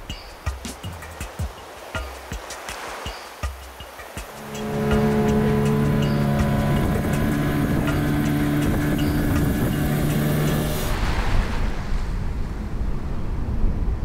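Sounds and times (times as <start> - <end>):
rushing water and wind: 0.0 - 14.0
outboard motor drone: 4.0 - 14.0.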